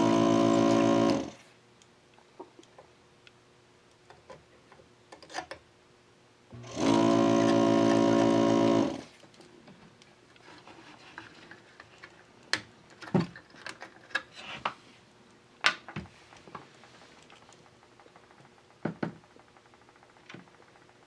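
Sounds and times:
desoldering vacuum pump buzzing: 0.0s - 1.4s, 6.5s - 9.2s.

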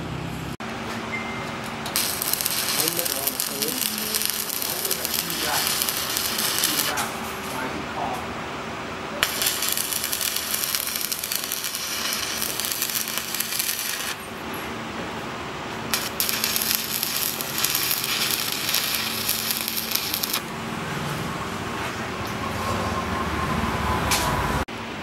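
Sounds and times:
welding arc crackling: 1.9s - 7.2s, 9.2s - 14.4s, 15.9s - 20.5s.

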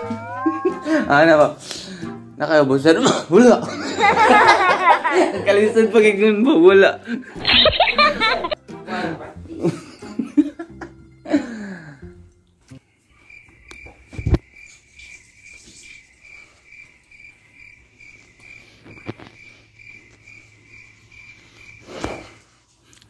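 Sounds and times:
cricket chirping: 12.7s - 22.5s.

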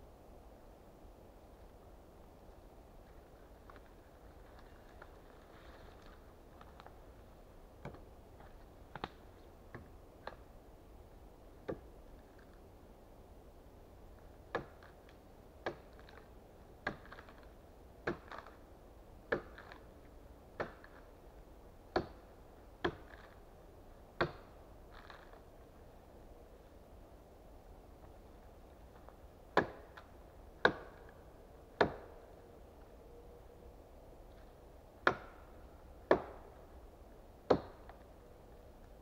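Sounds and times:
axe chopping wood: 14.5s - 15.0s, 15.6s - 16.2s, 16.8s - 18.6s, 19.3s - 19.9s, 20.6s - 21.1s, 21.9s - 22.2s, 22.8s - 23.4s, 24.2s - 25.4s, 29.5s - 31.2s, 31.8s - 32.2s, 35.0s - 36.5s, 37.5s - 38.0s.

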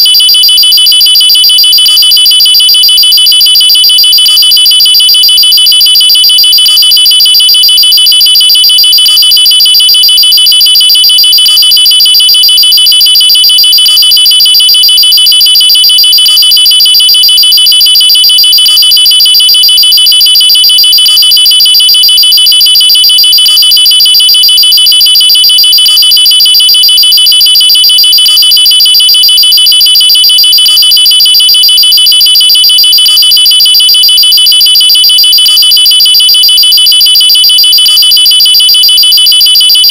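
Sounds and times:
pulsing electronic alarm: 0.0s - 39.9s.

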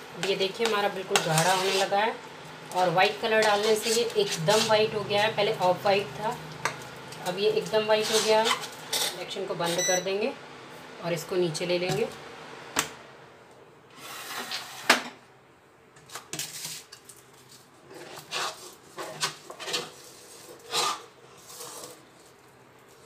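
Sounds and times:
metal spoon scraping clay: 0.2s - 2.0s, 3.2s - 5.5s, 7.5s - 9.2s, 17.9s - 23.0s.

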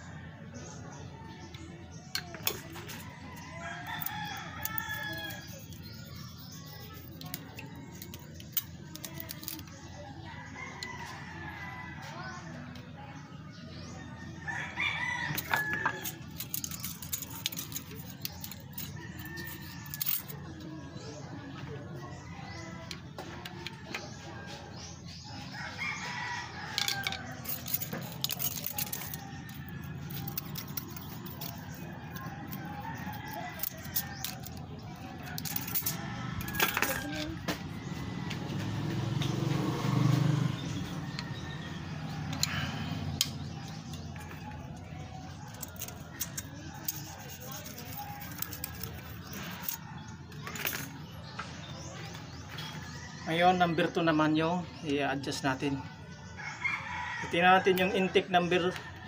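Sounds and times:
metal tools clicking and tapping: 2.1s - 9.8s, 15.2s - 20.4s, 26.6s - 37.6s, 41.1s - 42.6s, 43.2s - 49.8s, 50.4s - 51.6s
vehicle engine humming: 35.6s - 49.6s.

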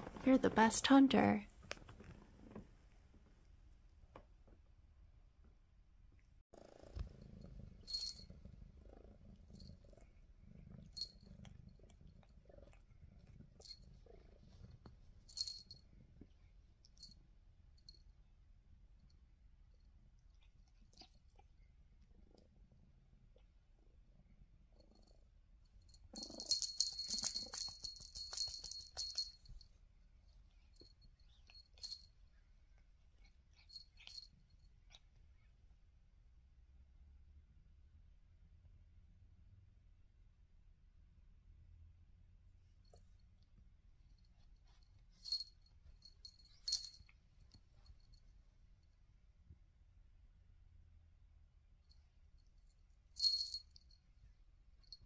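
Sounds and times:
cat purring: 6.5s - 35.7s
light jingles: 25.9s - 29.7s, 44.6s - 47.2s, 53.2s - 54.0s.

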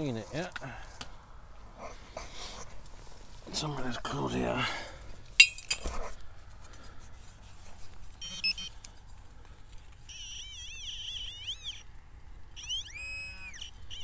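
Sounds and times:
short electronic beep: 8.2s - 8.7s
warbling electronic tone: 10.1s - 11.8s, 12.6s - 14.0s.

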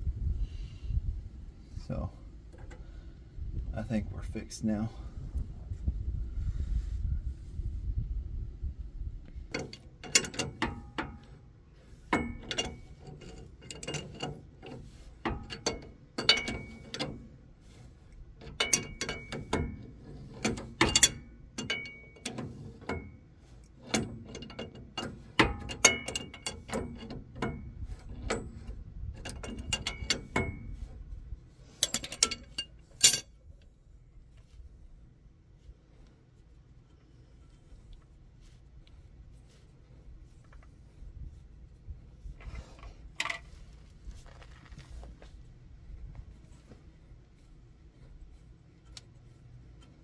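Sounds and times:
wrench clinking against a nut: 9.5s - 11.3s, 12.1s - 17.2s, 18.4s - 23.2s, 23.8s - 30.8s, 31.7s - 33.4s.

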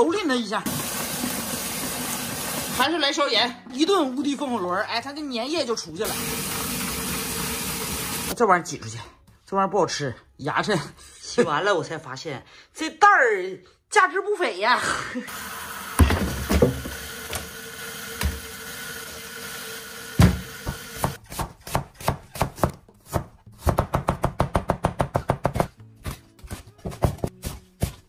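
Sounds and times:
tap water running into colander: 0.6s - 3.1s, 6.0s - 8.4s, 15.3s - 21.2s
knocks in sink: 20.2s - 20.8s
knife chopping on cutting board: 20.2s - 28.0s.

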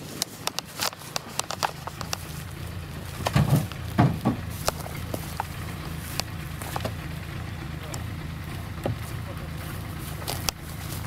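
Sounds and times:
footsteps crunching through dry grass: 0.0s - 11.0s
truck engine running: 0.0s - 11.0s
sharp snaps and clicks: 0.1s - 2.4s, 6.1s - 7.0s, 10.2s - 10.7s.

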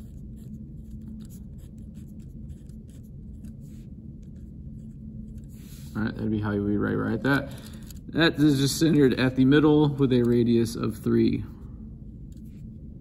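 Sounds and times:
pen scratching on paper: 0.0s - 6.0s.

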